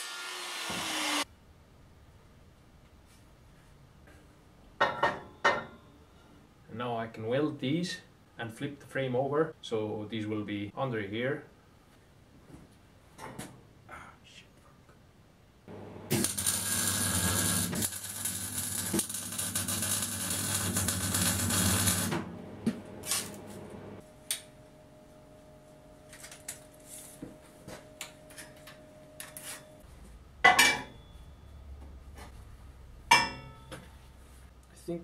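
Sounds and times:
welding arc crackling and buzzing: 15.7s - 24.0s.

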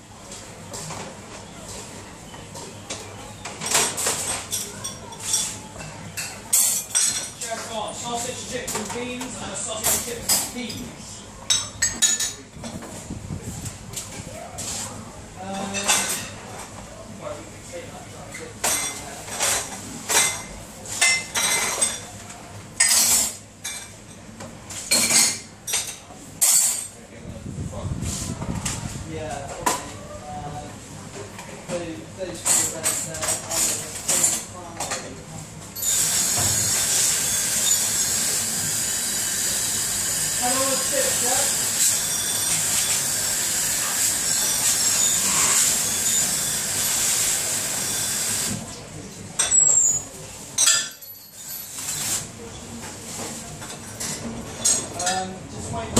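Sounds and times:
crockery clinking in dish racks: 3.6s - 7.8s, 11.5s - 12.4s, 18.3s - 22.1s, 22.8s - 27.0s, 49.1s - 52.1s.

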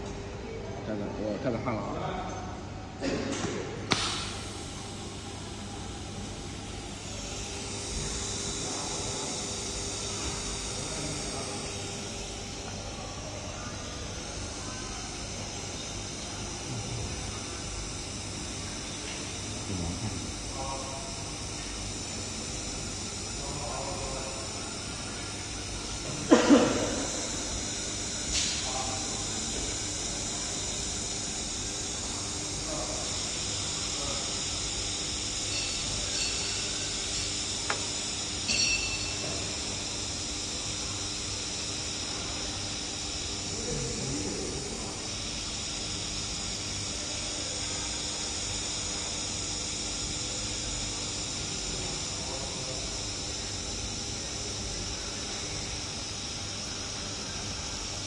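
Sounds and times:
laser welding head hissing: 3.2s - 58.0s
faint voices: 7.0s - 17.8s.

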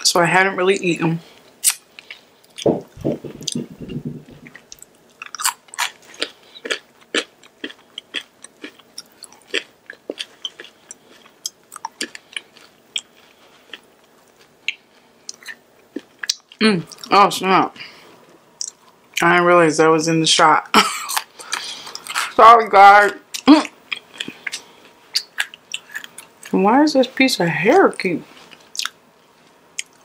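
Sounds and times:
chewing fries with mouth clicks: 1.4s - 2.7s, 3.3s - 17.1s, 18.2s - 19.2s, 21.1s - 22.4s, 23.0s - 26.6s, 28.3s - 30.0s.

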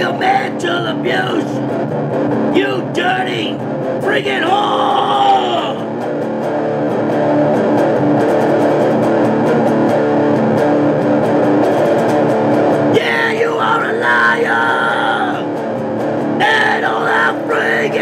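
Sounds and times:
man singing: 0.0s - 1.6s, 2.5s - 5.9s, 12.9s - 15.5s, 16.4s - 18.0s
electric guitar playing metal: 0.0s - 18.0s.

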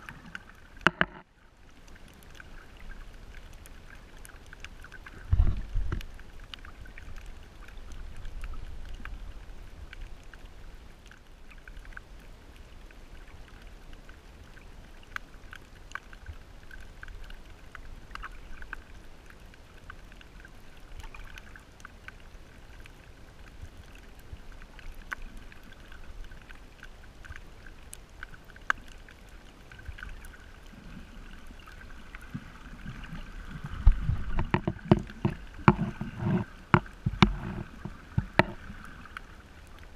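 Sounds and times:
muffled water thuds: 0.0s - 1.3s, 5.2s - 6.2s, 32.3s - 38.8s
faint clicks and crackles: 0.0s - 39.9s.

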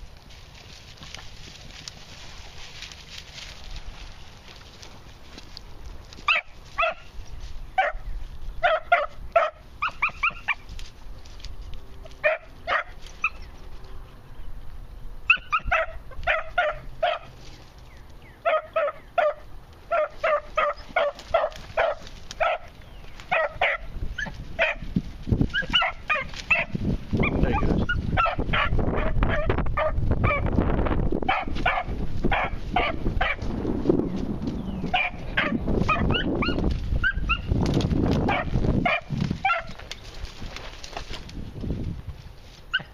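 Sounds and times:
rustling brush: 0.0s - 14.3s, 19.8s - 42.9s
puppies yipping: 6.2s - 7.2s, 7.8s - 10.7s, 12.2s - 13.8s, 15.3s - 17.5s, 18.3s - 24.8s, 25.4s - 30.5s, 31.3s - 33.4s, 34.8s - 37.6s, 38.3s - 40.0s, 42.7s - 42.9s.

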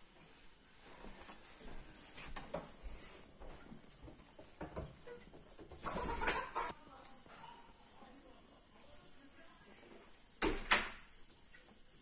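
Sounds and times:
hen clucking: 5.8s - 6.8s.

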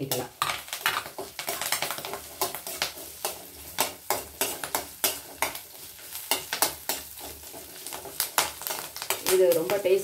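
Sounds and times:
steel spoon scraping a pan: 0.0s - 9.4s
faint sizzle: 0.0s - 10.0s.

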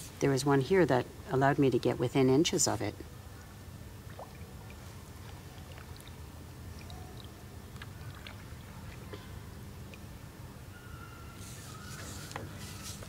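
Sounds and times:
water against hull: 3.4s - 13.0s.

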